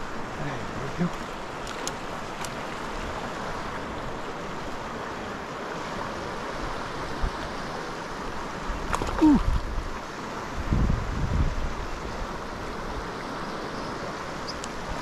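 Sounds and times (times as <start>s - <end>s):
river flowing: 0.0s - 15.0s
wind buffeting microphone: 8.7s - 13.0s.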